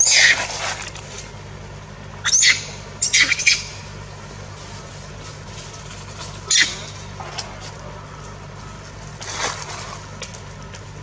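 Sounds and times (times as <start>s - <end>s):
baby monkey screaming: 0.0s - 0.6s, 2.2s - 4.0s, 6.3s - 7.5s.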